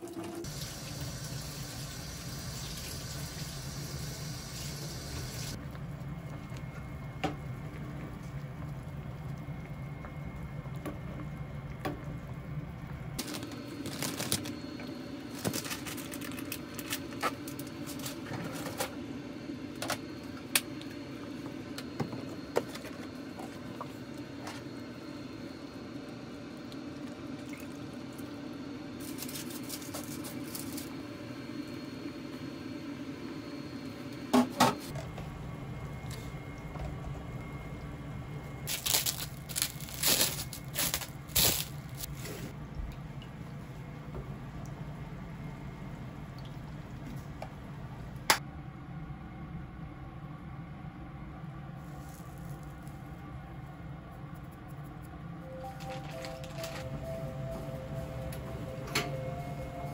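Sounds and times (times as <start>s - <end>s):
plastic wrap crinkling: 38.7s - 42.1s.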